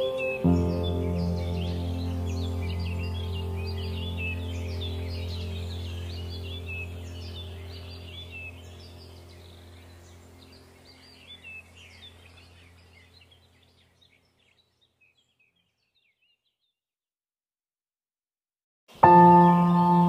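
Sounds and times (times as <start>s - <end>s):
steady low drone: 0.0s - 13.4s
birdsong chirps: 0.0s - 16.8s, 18.9s - 20.0s.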